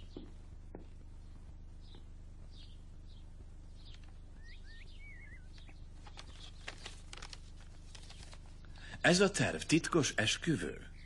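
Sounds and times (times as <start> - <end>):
faint birds chirping: 0.0 - 11.0
steady low hum: 0.0 - 11.0
wavering bird call: 4.4 - 5.5.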